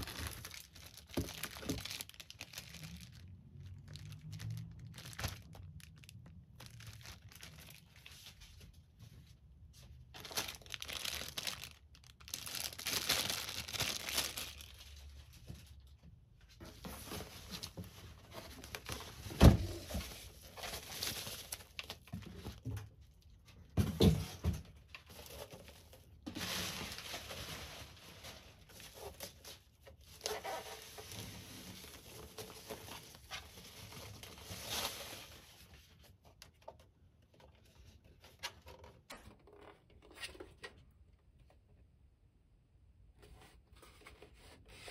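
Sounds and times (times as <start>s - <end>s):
bubble wrap crinkling: 0.0s - 8.7s, 10.1s - 15.4s, 16.8s - 22.2s, 25.0s - 36.3s.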